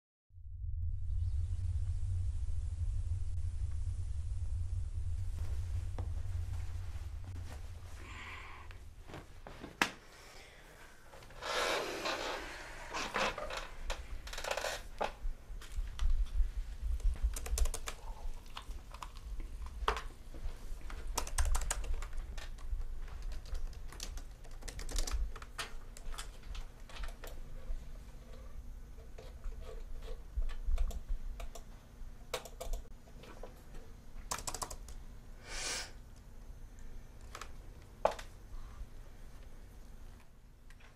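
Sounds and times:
low room hum: 0:00.4 - 0:40.9
rustling swishes: 0:03.4 - 0:10.3
laptop keyboard typing: 0:17.0 - 0:19.2, 0:21.1 - 0:27.4, 0:32.3 - 0:32.9, 0:34.3 - 0:35.0.

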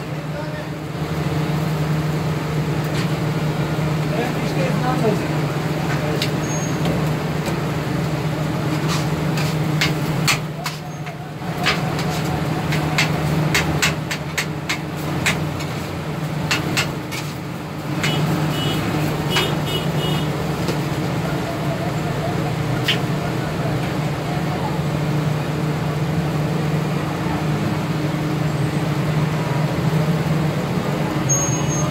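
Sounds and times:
metal spatula scraping griddle: 0:08.7 - 0:18.4.

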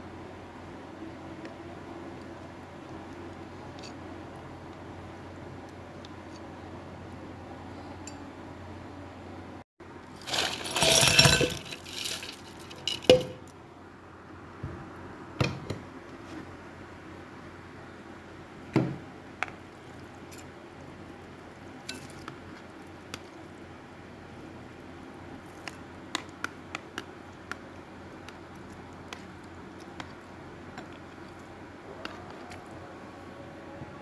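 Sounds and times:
ice cubes clicking: 0:10.2 - 0:13.3
jelly squishing: 0:24.4 - 0:33.0.

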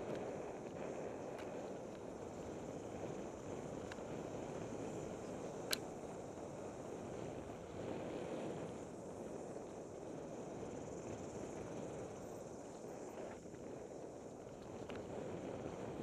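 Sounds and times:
wind on microphone: 0:00.0 - 0:16.0
sharp click: 0:05.7 - 0:05.9.

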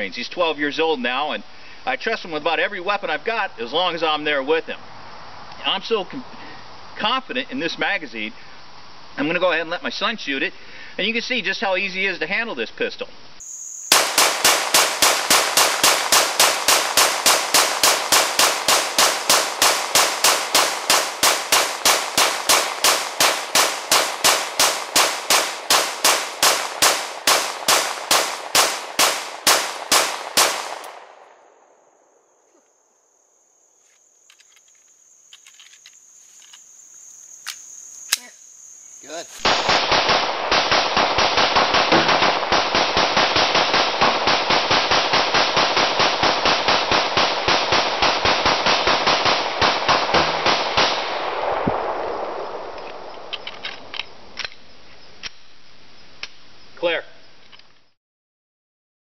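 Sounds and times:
rapid pistol shots: 0:13.4 - 0:31.4, 0:39.4 - 0:53.3.

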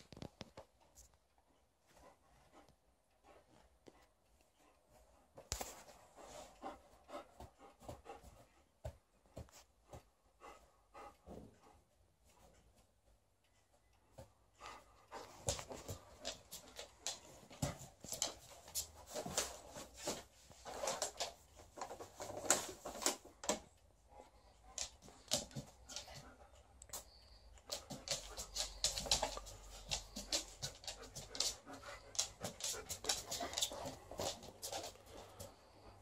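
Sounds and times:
dog panting: 0:01.8 - 0:36.0
dog claws ticking on floor: 0:14.2 - 0:23.7, 0:24.6 - 0:35.9.

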